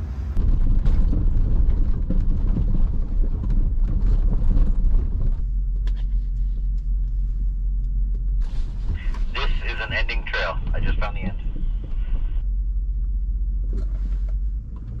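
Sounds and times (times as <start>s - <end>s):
vehicle engine rumble: 0.0s - 15.0s
vehicle knocks and rattles: 0.4s - 6.3s.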